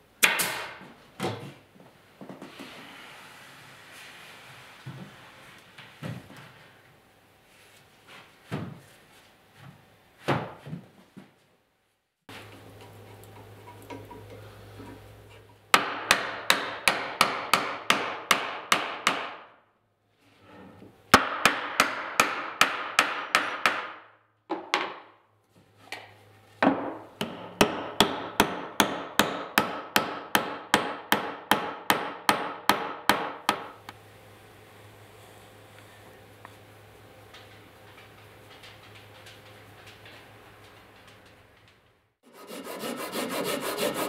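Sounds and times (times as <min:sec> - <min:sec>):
hammer striking wood: 0:00.2 - 0:00.8, 0:15.7 - 0:19.5, 0:21.2 - 0:25.0, 0:26.6 - 0:33.8.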